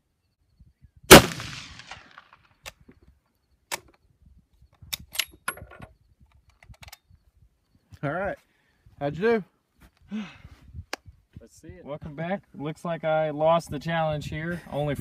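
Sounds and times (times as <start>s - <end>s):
rifle shot: 1.1s - 2.4s
rifle bolt clicks and clacks: 4.9s - 7.0s.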